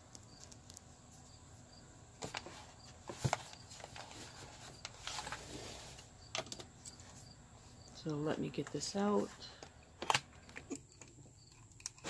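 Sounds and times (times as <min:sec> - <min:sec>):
cardboard scraping rustle: 0:02.2 - 0:06.1.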